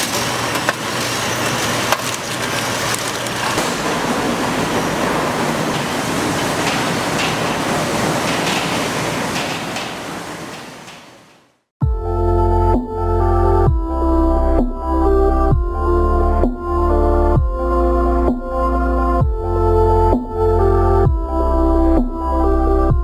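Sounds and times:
low hum: 0:00.0 - 0:09.5
factory machinery clattering: 0:00.0 - 0:11.6.

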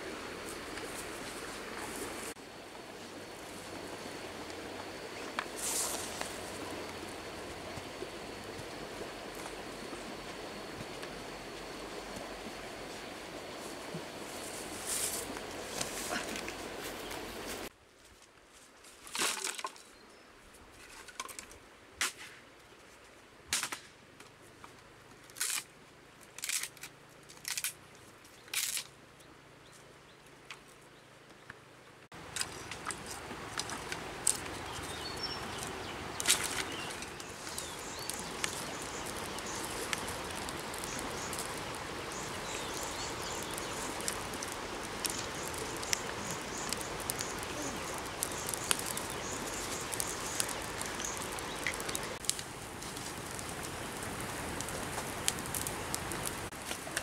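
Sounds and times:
fire hissing and crackling: 0:00.0 - 0:17.7, 0:32.1 - 0:57.0.

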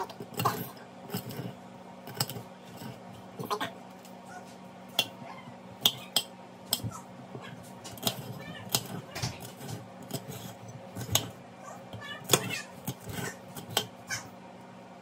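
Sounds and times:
knife cutting pepper: 0:07.9 - 0:14.2.

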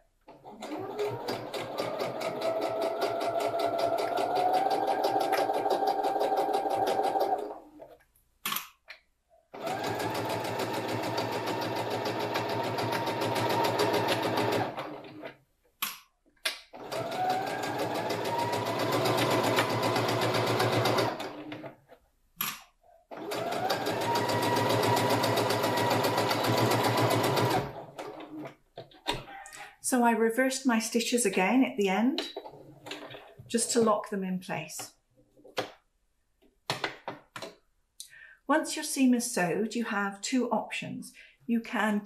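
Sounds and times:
sewing machine clicks: 0:00.3 - 0:07.6
sewing machine motor whine: 0:16.8 - 0:21.4, 0:23.2 - 0:28.1.

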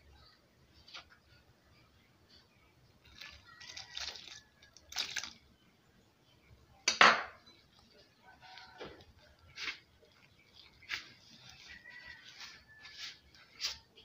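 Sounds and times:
hands mixing in plastic bowl: 0:03.0 - 0:05.4, 0:08.4 - 0:14.0
milk pouring: 0:03.0 - 0:05.5.

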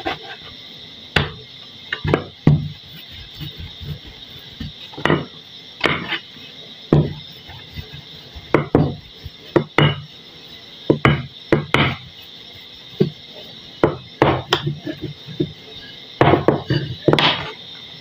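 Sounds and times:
rolling pin knocking on board: 0:01.2 - 0:02.8, 0:04.6 - 0:06.1, 0:06.9 - 0:07.2, 0:08.5 - 0:10.0, 0:10.9 - 0:12.0, 0:13.8 - 0:15.5, 0:16.2 - 0:17.5.

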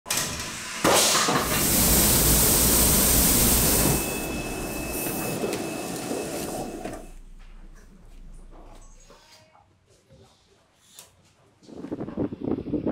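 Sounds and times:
faint steady high tone: 0:03.5 - 0:07.2.

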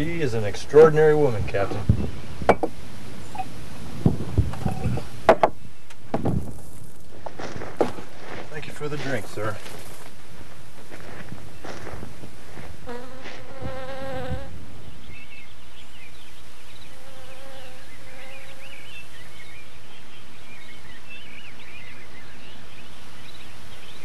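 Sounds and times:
steady hiss: 0:00.0 - 0:20.9
flying insect buzzing: 0:12.5 - 0:14.6, 0:16.8 - 0:18.9.

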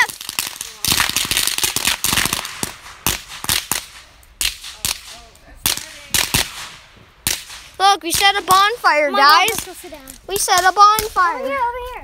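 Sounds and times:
bonfire crackling and popping: 0:00.0 - 0:12.0.

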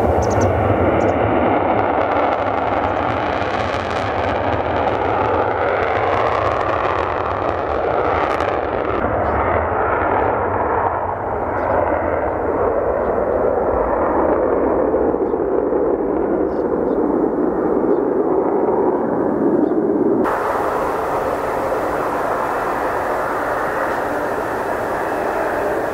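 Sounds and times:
fighter jet taking off: 0:20.0 - 0:25.9.

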